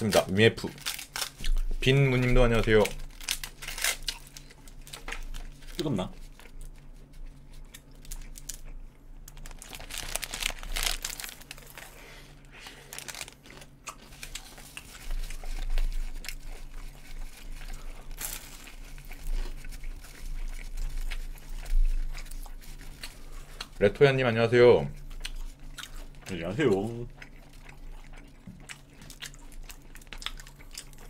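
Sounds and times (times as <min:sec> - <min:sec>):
paper wrappers crinkling: 0:00.0 - 0:24.0
crunchy bites into pastry: 0:07.6 - 0:12.0, 0:17.6 - 0:21.5.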